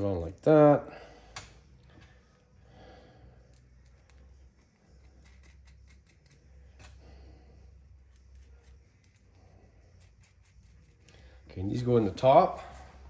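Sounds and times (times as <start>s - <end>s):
low hum: 0.9s - 13.0s
metallic clicks of nuts and bolts: 4.9s - 7.0s, 8.0s - 11.3s.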